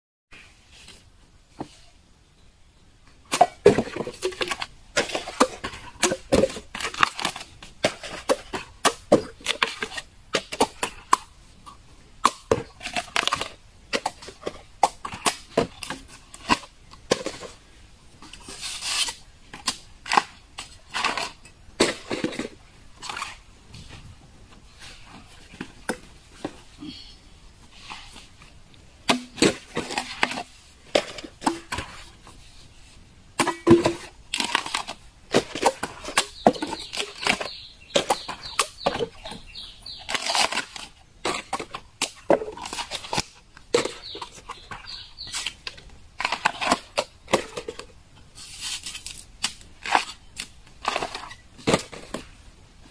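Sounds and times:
cleaver chopping bamboo: 29.1 - 30.4.

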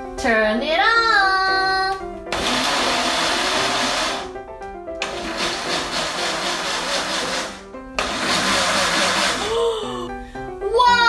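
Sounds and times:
background music: 0.0 - 11.0
blender running: 2.3 - 4.4, 5.0 - 9.6.

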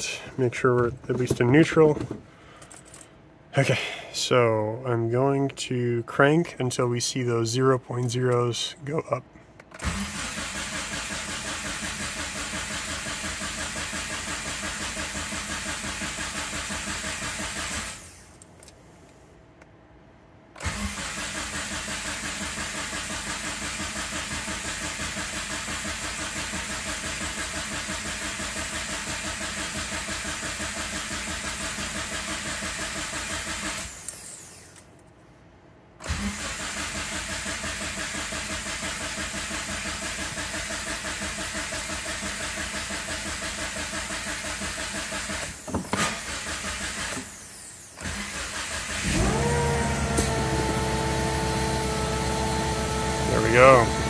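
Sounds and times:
engine cranking on starter: 9.7 - 18.4, 20.6 - 34.8, 36.0 - 54.0.

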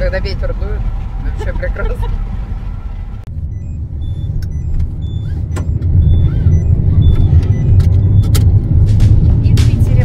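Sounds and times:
tyres on wet road: 0.0 - 3.3
engine rumble: 0.0 - 10.0.

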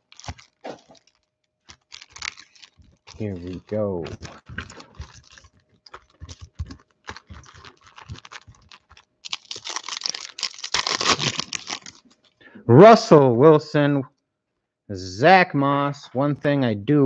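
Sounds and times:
card packs clicking and tapping: 0.0 - 12.0
foil pack crinkling and tearing: 0.0 - 12.4.

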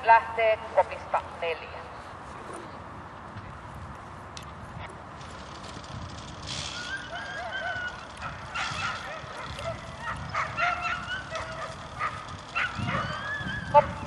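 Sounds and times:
dogs yelping and whining: 6.5 - 14.0.

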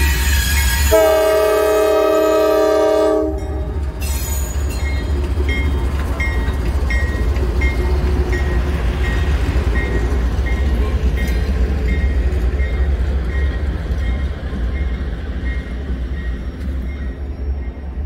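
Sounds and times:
locomotive air horn chord: 0.0 - 3.6
passing train rumble: 0.0 - 18.0.

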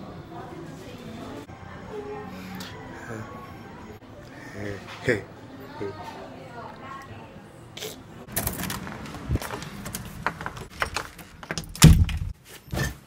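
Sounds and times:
door lock clicking and rattling: 9.8 - 12.4
door opening thud: 10.7 - 13.0.

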